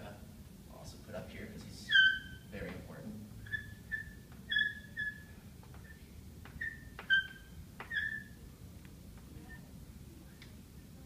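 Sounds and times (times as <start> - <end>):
chalk squeaking on blackboard: 1.8 - 2.6, 3.4 - 8.4.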